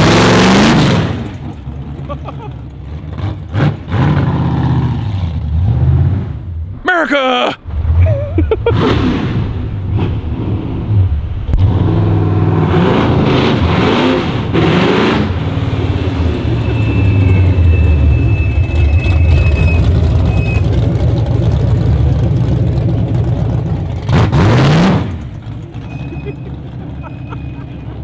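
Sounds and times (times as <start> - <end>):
car engine revving and driving past: 7.6 - 28.0.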